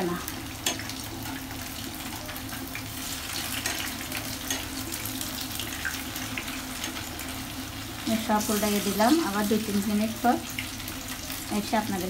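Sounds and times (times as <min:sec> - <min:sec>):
bread frying in hot oil: 0:00.0 - 0:12.0
knife turning food in pan: 0:00.6 - 0:07.2.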